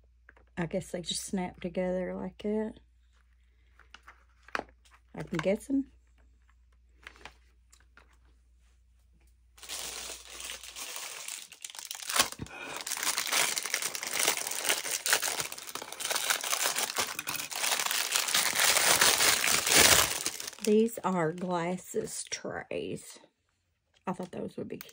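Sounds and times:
plastic bag crinkling and rustling: 3.1s - 8.4s, 9.6s - 21.6s.

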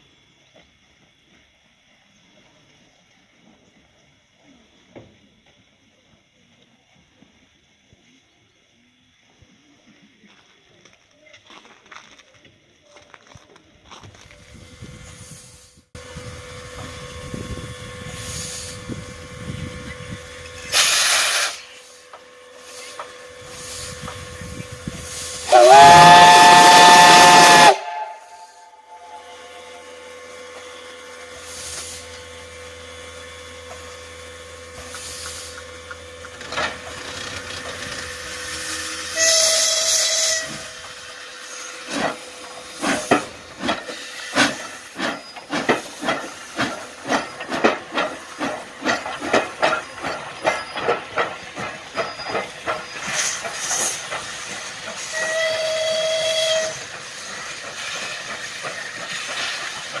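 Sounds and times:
steam locomotive hissing: 12.8s - 60.0s
locomotive exhaust chuffs: 14.1s - 60.0s
steam whistle blast: 20.7s - 21.7s, 25.3s - 30.0s, 38.6s - 40.9s, 55.0s - 56.9s.

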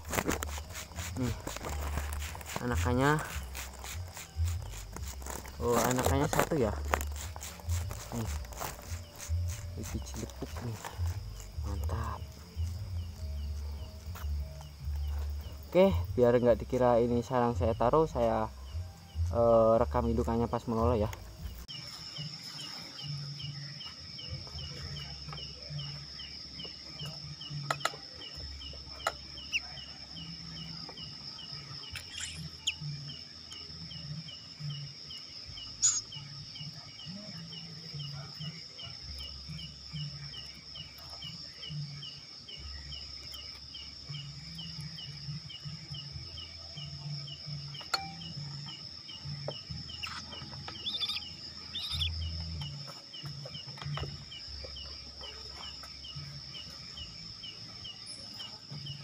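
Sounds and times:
high-pitched insect drone: 0.0s - 17.3s, 21.7s - 59.0s
cricket chirps: 0.0s - 59.0s.

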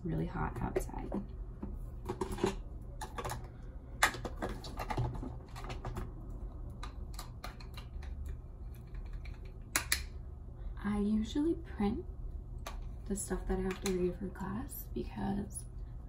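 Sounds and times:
makeup items clicking and tapping: 0.5s - 10.2s, 12.6s - 14.1s.

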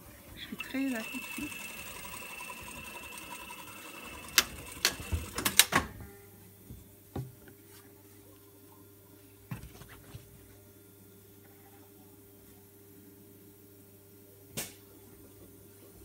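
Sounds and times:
sewing machine whine: 0.5s - 5.7s.

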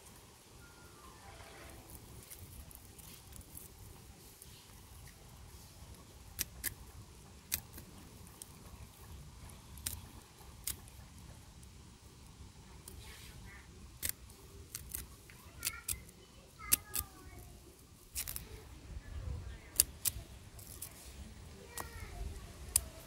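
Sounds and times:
faint rustling of string strands: 0.9s - 6.3s.

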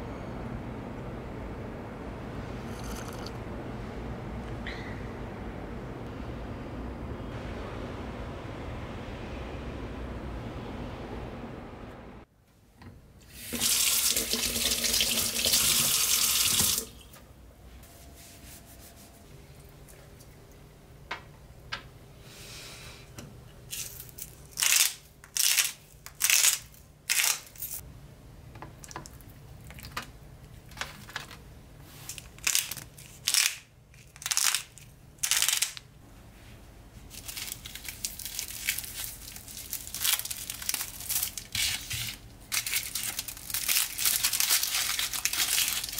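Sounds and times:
tap water running into sink: 13.5s - 16.9s
rustling and handling sounds: 17.7s - 20.6s, 29.6s - 45.9s
garlic net crinkling: 37.1s - 45.9s.

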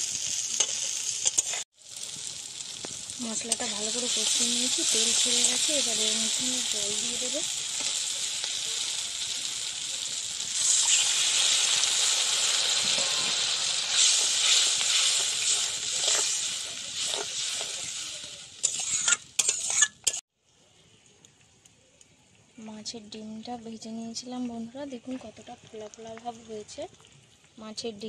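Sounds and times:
masala sizzling in hot oil: 0.0s - 20.2s, 22.6s - 28.0s
metal spatula stirring: 0.6s - 1.6s, 12.8s - 20.2s.

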